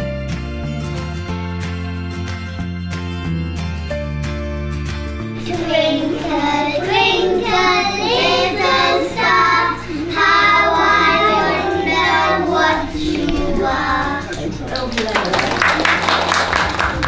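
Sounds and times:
young children singing: 5.3s - 14.8s.

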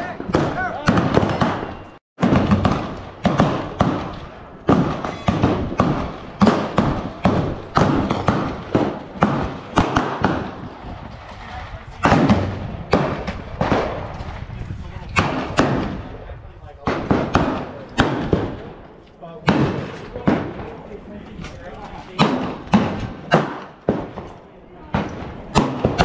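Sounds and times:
gunshots with echo: 0.0s - 14.5s, 15.1s - 16.2s, 16.8s - 20.8s, 22.2s - 26.0s.

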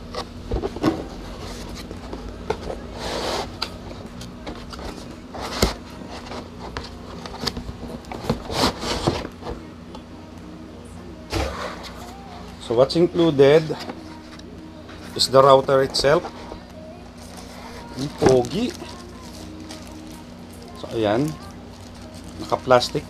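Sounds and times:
steady low hum: 0.0s - 23.0s
cardboard packaging rustling: 13.5s - 23.0s.

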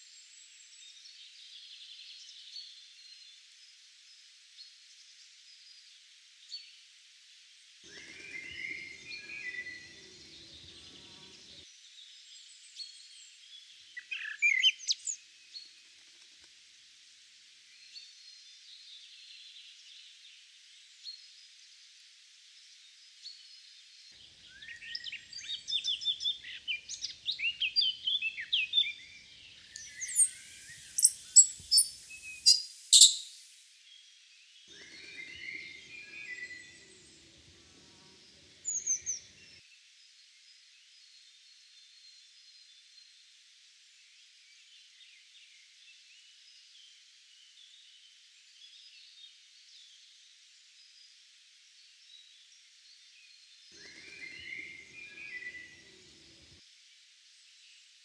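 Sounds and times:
bird singing: 7.9s - 11.6s, 14.0s - 15.2s, 24.2s - 33.7s, 34.7s - 37.2s, 53.2s - 56.2s
sharp bird clicks: 29.7s - 33.6s.

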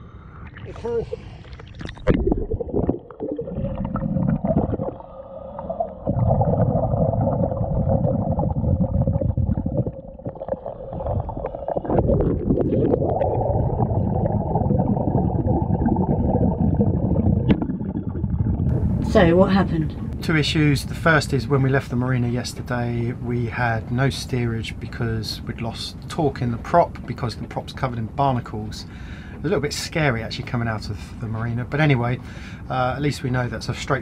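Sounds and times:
exhaled bubbles underwater: 0.1s - 19.2s
water splashing: 0.4s - 19.3s.

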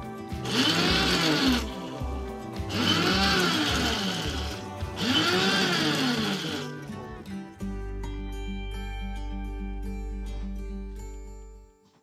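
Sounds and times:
electric coffee grinder whirring: 0.4s - 6.9s.

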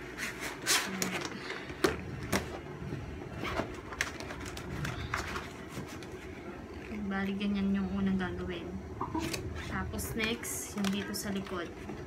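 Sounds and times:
plastic sheet crackling: 3.3s - 7.4s, 9.0s - 12.0s.

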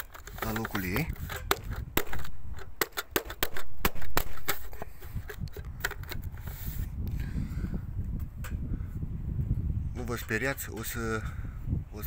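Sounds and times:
plastic vent cover clicking: 0.0s - 6.4s.

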